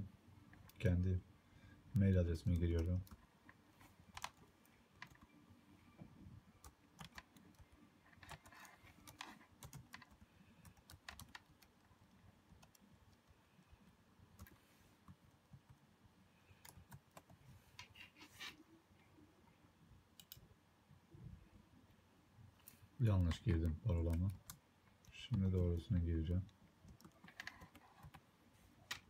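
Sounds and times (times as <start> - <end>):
laptop keyboard typing: 2.0 - 3.3, 4.1 - 5.4, 6.6 - 13.4, 14.4 - 15.8, 16.5 - 17.9, 20.2 - 20.4, 23.2 - 26.0, 26.8 - 28.2.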